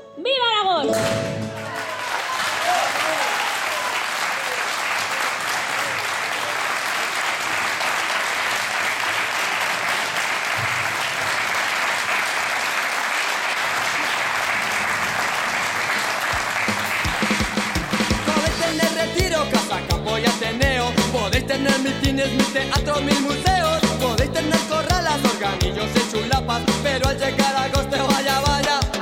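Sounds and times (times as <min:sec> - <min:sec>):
audience applauding: 0:01.3 - 0:18.6
music beat: 0:16.7 - 0:29.0.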